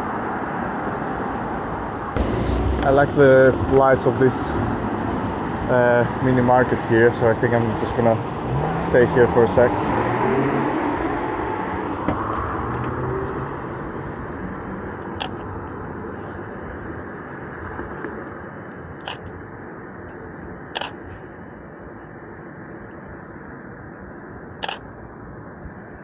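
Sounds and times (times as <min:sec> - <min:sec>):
street traffic noise: 0:00.0 - 0:26.0
camera shutter clicking: 0:20.8 - 0:21.0, 0:24.6 - 0:24.8.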